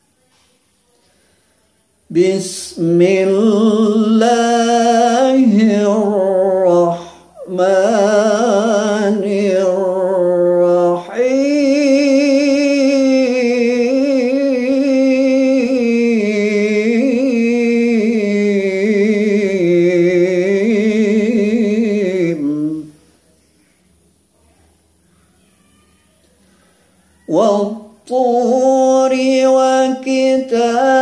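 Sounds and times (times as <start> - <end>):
man reciting melodically: 2.1 - 23.1, 27.2 - 31.0.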